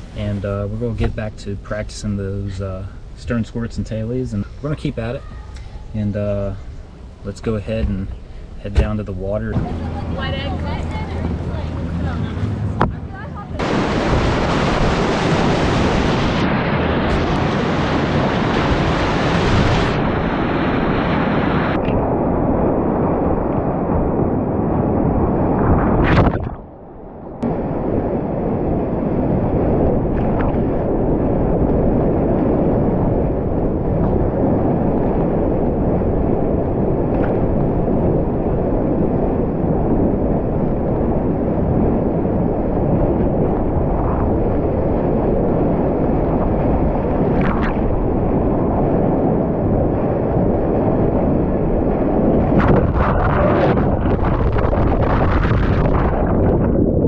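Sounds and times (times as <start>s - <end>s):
wind on microphone: 0.0s - 57.0s
whitewater rushing: 9.5s - 21.8s.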